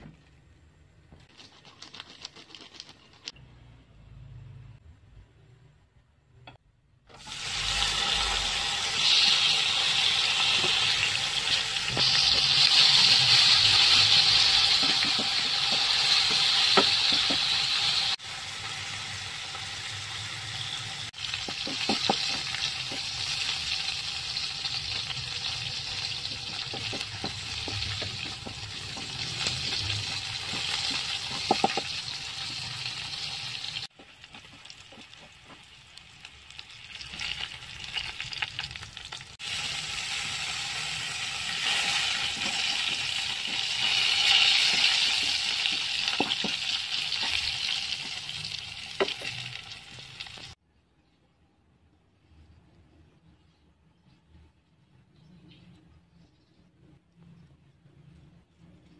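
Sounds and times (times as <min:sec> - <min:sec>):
food sizzling in hot oil: 0:07.1 - 0:50.6
spatula scraping a pan: 0:41.5 - 0:48.1.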